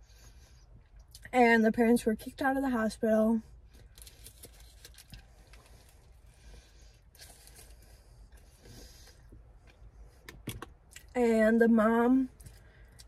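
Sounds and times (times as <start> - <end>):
paper wrapper crinkling: 3.8 - 5.9.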